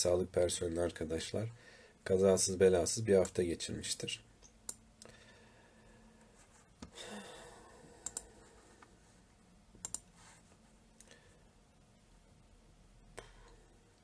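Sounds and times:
faint sharp clicks: 8.0s - 8.3s, 9.8s - 10.1s.

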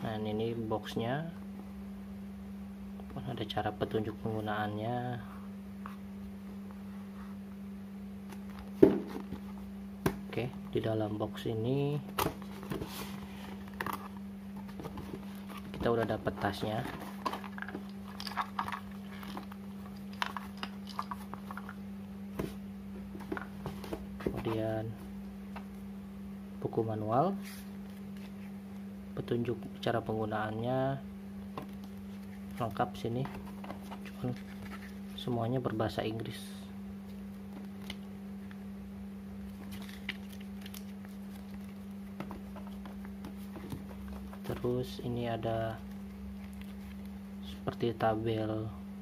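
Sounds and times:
steady hum: 0.0s - 49.0s
paper pages flipping: 12.1s - 21.8s, 31.6s - 35.2s, 39.5s - 44.7s, 45.8s - 47.2s.

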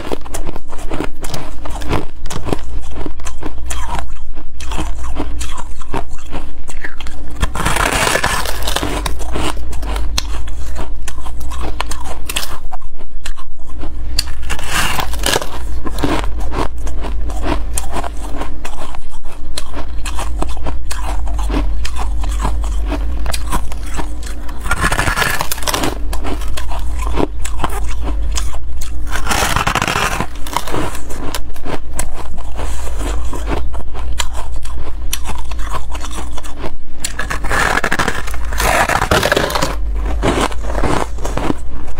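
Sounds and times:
chewing crunchy ice: 0.0s - 41.9s
steady low hum: 0.0s - 41.9s.

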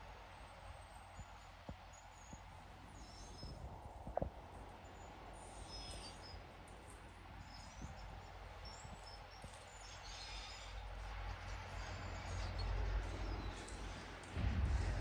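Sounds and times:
low rumble: 10.8s - 15.0s.

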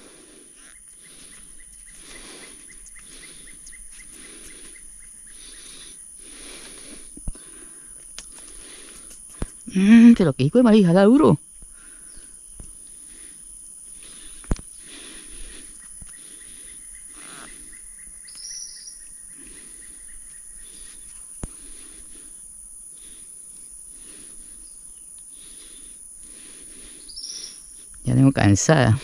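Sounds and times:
insects buzzing: 0.0s - 29.0s
bird chirps: 0.6s - 6.0s, 15.7s - 21.4s, 27.0s - 27.8s.

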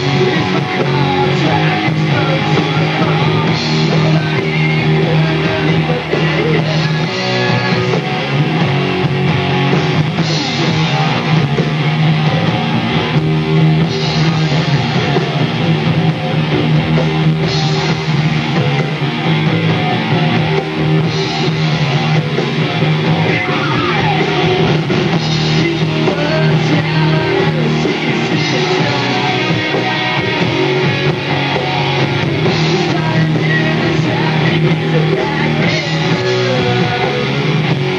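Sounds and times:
bass guitar: 0.0s - 37.9s
drum kit: 0.0s - 37.9s
electric guitars: 0.0s - 37.9s.

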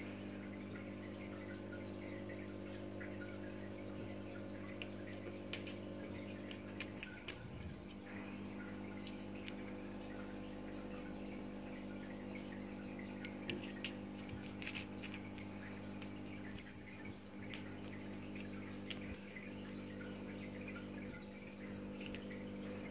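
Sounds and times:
aquarium water bubbling: 0.0s - 22.9s
tank pump humming: 0.0s - 22.9s.

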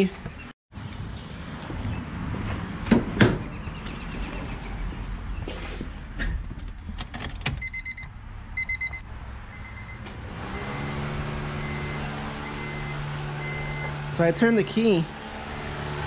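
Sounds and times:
car warning chime beeping: 7.6s - 16.0s.

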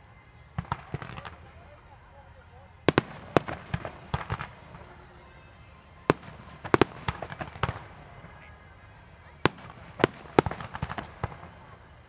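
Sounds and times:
firework cracks and pops: 2.9s - 4.8s, 6.1s - 8.0s, 9.4s - 12.0s.

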